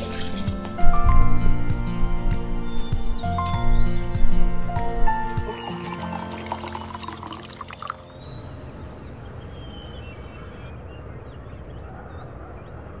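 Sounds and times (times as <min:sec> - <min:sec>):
wine pouring into glass: 0:05.4 - 0:08.1.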